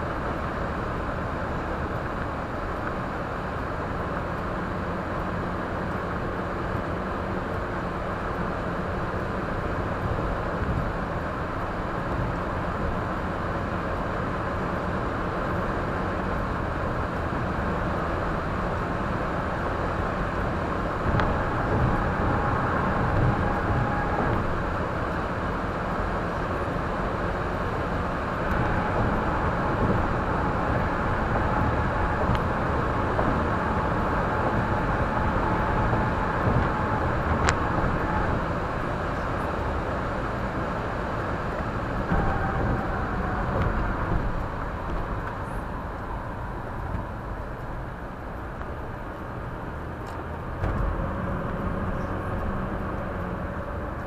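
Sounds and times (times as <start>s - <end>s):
car road and engine noise: 0.0s - 54.0s.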